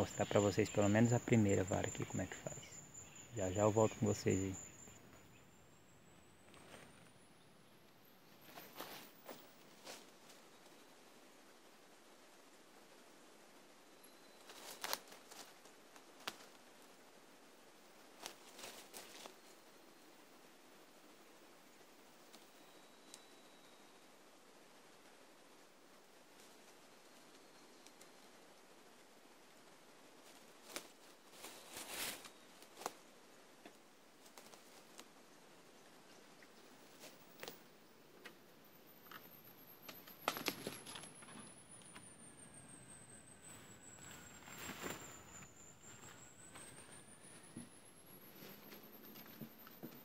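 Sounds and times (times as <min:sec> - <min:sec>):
leaves and twigs rustling: 0:00.0 - 0:50.0
quiet steady hiss: 0:00.0 - 0:50.0
crackles in dry leaf litter: 0:08.3 - 0:11.7, 0:13.8 - 0:24.2, 0:24.9 - 0:42.0, 0:42.9 - 0:50.0
twigs snapping: 0:14.5 - 0:15.5, 0:39.8 - 0:41.1.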